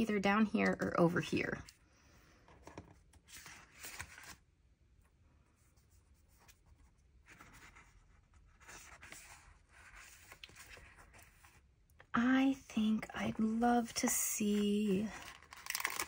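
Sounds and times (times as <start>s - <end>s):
paper rustling: 2.5s - 4.5s, 5.6s - 11.7s, 14.0s - 16.0s.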